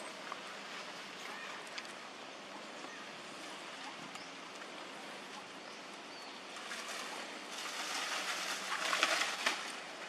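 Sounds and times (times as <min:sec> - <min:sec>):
outdoor noise: 0:00.0 - 0:10.0
crackling rustle: 0:06.5 - 0:10.0.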